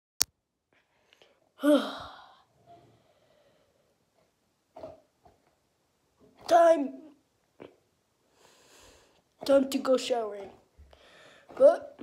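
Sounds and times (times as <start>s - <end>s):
person breathy vocal sound: 1.6s - 2.5s.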